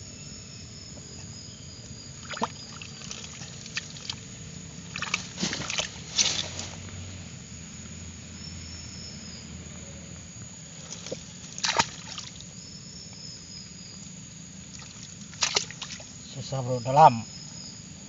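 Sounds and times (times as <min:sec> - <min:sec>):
sharp wet slaps: 0:02.2 - 0:04.2, 0:04.9 - 0:06.6, 0:10.9 - 0:12.4, 0:14.7 - 0:16.1
mud sloshing and squelching: 0:02.2 - 0:06.9, 0:10.8 - 0:12.4, 0:14.7 - 0:16.2.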